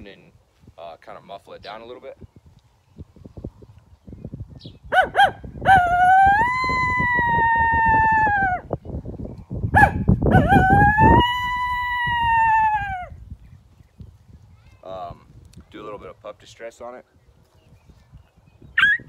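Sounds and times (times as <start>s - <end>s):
coyote howl call: 5.0s - 8.7s, 9.8s - 13.2s.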